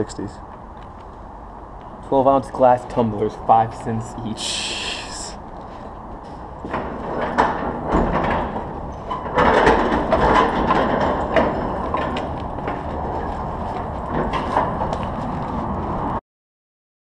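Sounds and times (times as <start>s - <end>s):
heavy wooden door scraping open: 6.3s - 16.2s.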